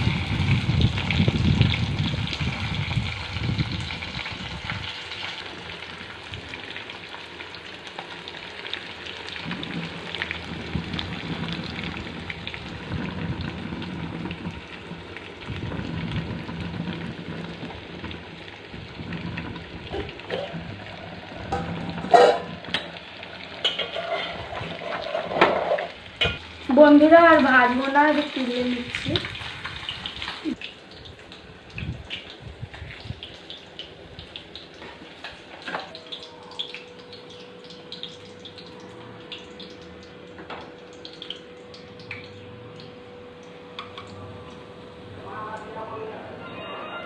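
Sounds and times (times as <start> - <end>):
fish sizzling in hot oil: 0.0 - 43.7
metal spatula scraping a wok: 23.7 - 26.0.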